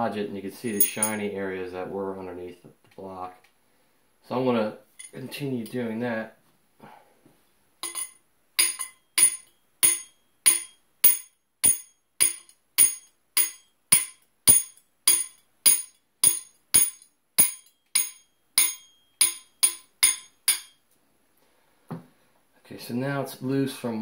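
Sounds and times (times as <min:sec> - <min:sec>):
hammer tapping steel: 0:07.8 - 0:20.8.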